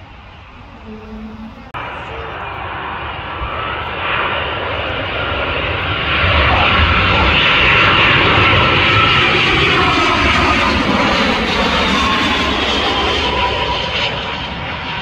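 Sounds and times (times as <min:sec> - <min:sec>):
faint high whine: 0:00.0 - 0:07.4
jet engines overhead: 0:00.0 - 0:15.0.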